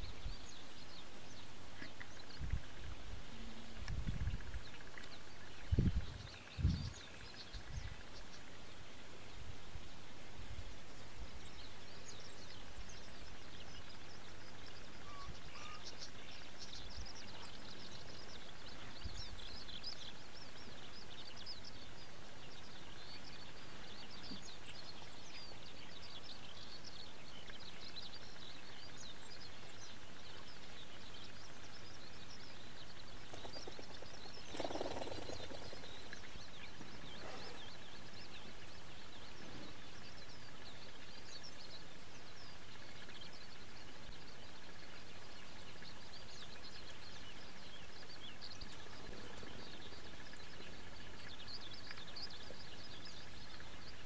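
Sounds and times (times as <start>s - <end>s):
distant birds chirping: 11.4s - 53.1s.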